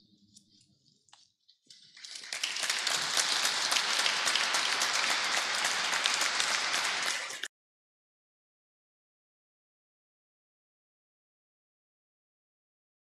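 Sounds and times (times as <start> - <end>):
audience applauding: 1.8 - 7.5.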